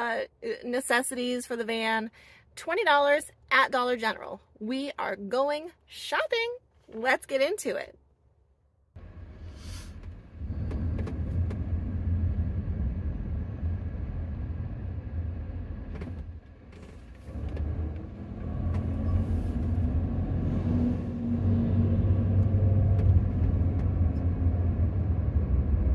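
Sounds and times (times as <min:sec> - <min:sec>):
road and engine noise in cabin: 0:09.0 - 0:25.9.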